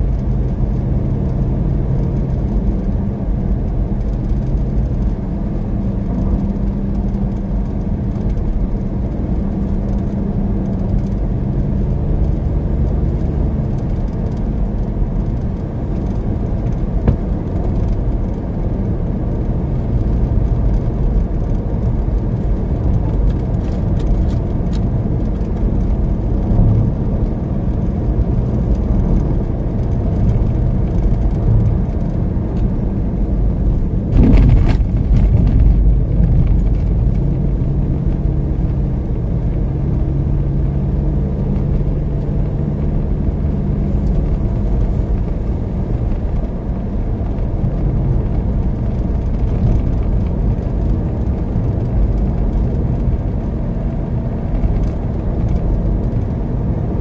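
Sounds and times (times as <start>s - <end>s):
car engine and tyre rumble: 0.0s - 57.0s
rush of noise: 33.8s - 37.2s.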